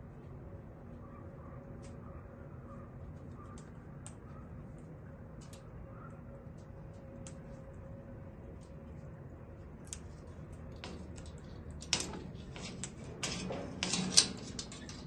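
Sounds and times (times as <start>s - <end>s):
light clicks and taps: 3.1s - 7.8s.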